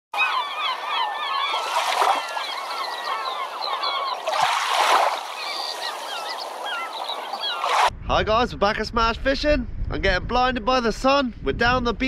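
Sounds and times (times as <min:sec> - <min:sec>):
flock of birds calling: 0:00.2 - 0:07.9.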